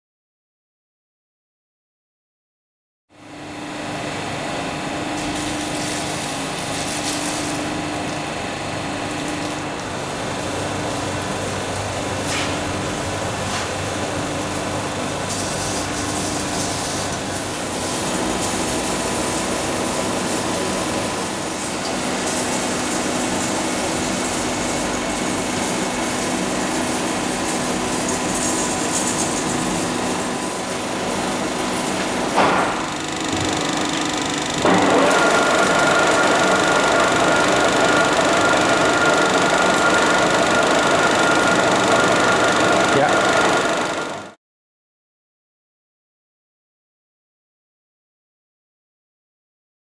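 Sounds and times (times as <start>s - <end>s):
lathe motor droning: 14.0s - 44.3s.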